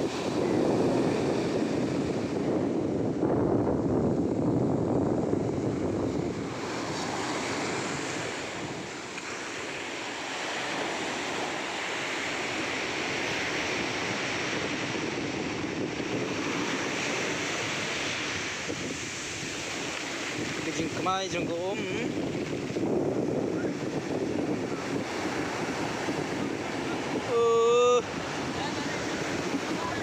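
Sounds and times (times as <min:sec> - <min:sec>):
waves washing up beach: 0:00.0 - 0:30.0
wind buffeting microphone: 0:00.0 - 0:30.0.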